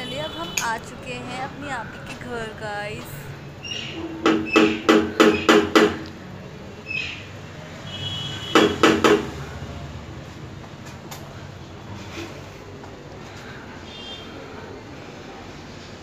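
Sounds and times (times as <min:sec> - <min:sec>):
knocking on metal door: 0:04.1 - 0:06.0, 0:08.5 - 0:09.3.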